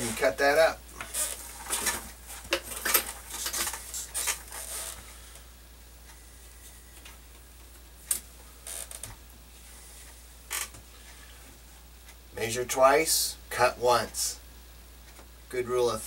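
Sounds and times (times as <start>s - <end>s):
tool handling clicks and clatter: 1.0s - 4.6s.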